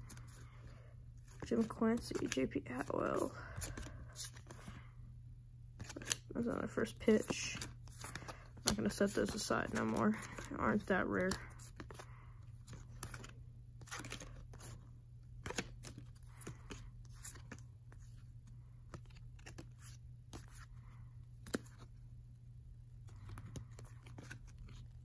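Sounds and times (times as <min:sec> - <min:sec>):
cards flipped by hand: 0:05.8 - 0:06.2, 0:07.2 - 0:22.0, 0:23.0 - 0:25.0.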